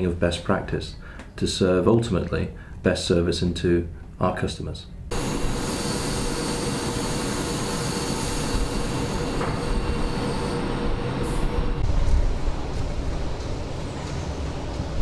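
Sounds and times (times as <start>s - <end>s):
constant machine whining tones: 5.1s - 15.0s
factory machinery hum and hiss: 5.1s - 15.0s
wind rumble on microphone: 11.6s - 15.0s.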